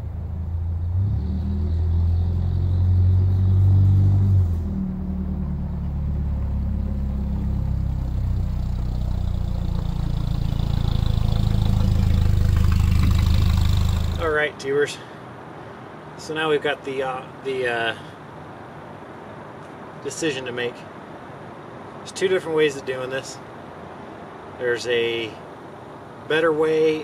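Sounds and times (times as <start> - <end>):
engine exhaust drone: 0.0 - 15.8.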